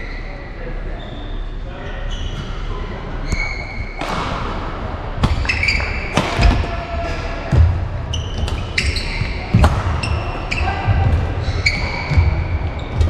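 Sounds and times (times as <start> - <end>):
shoes squeaking on court floor: 1.0 - 4.0, 5.2 - 6.2, 8.1 - 13.0.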